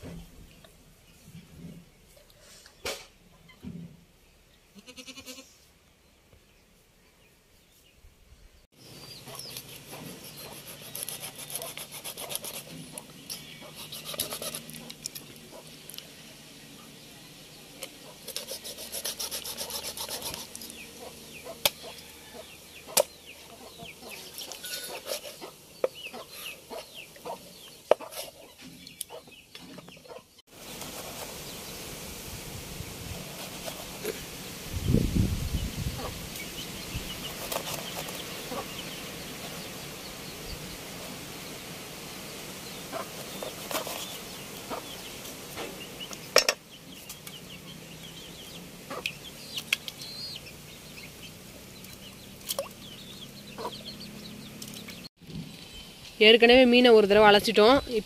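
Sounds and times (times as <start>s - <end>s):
knife sawing through fish: 9.4s - 12.9s, 13.7s - 14.8s, 18.2s - 20.6s, 24.8s - 25.5s.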